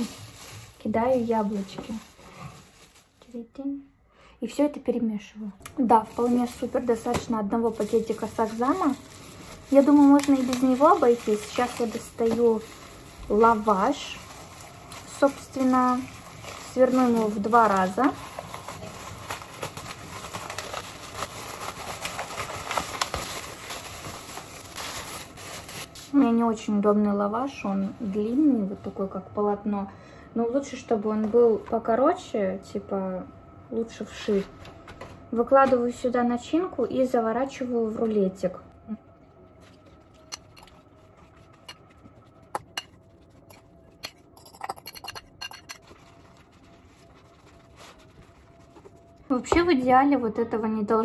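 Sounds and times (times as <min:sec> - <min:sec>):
plastic bag crinkling: 0:00.0 - 0:03.5, 0:05.7 - 0:26.2, 0:39.4 - 0:49.5
spoon scraping ceramic bowl: 0:40.3 - 0:45.9.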